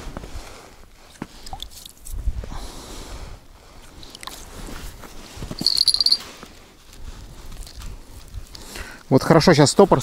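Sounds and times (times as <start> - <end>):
fishing spool handling: 5.6 - 6.2
high buzzing rattle: 5.6 - 6.2.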